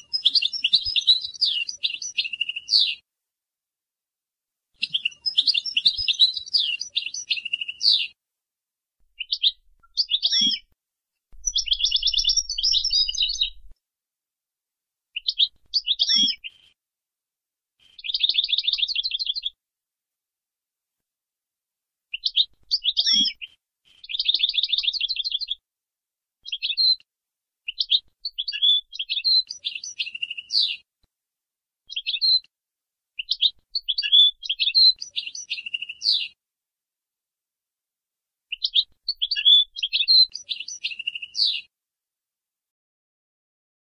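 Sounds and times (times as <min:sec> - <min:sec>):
goldfinch twittering and trilling: 0:00.1 - 0:03.0, 0:04.8 - 0:08.1, 0:09.2 - 0:10.6, 0:11.4 - 0:13.7, 0:15.2 - 0:16.4, 0:18.0 - 0:19.5, 0:22.2 - 0:23.4, 0:24.0 - 0:25.6, 0:26.4 - 0:27.0, 0:27.7 - 0:30.8, 0:31.9 - 0:32.4, 0:33.2 - 0:36.3, 0:38.5 - 0:41.6.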